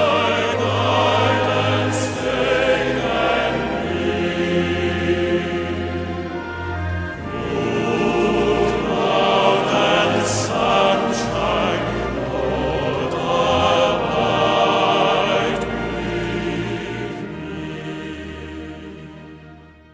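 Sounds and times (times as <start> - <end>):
choir singing sustained notes: 0.0 - 19.9.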